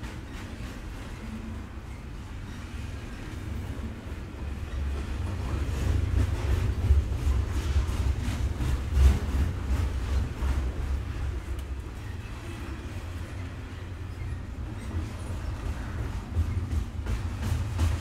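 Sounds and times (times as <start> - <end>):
train rumbling past: 0.0 - 18.0
wheels clacking on rails: 0.0 - 18.0.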